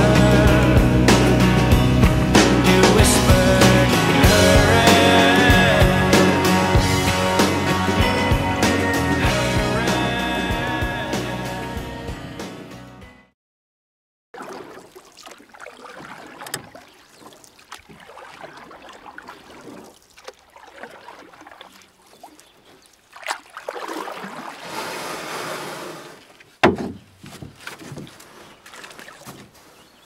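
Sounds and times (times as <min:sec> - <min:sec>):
paddles splashing through water: 0:14.4 - 0:30.0
sharp knocks: 0:26.6 - 0:28.1.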